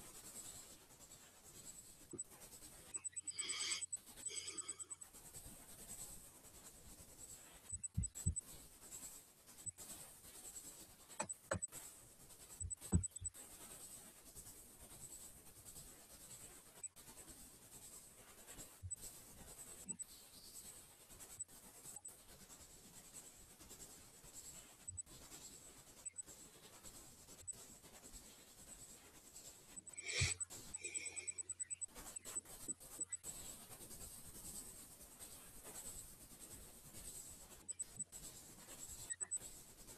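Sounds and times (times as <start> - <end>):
thin high tone: 3.0 - 5.0.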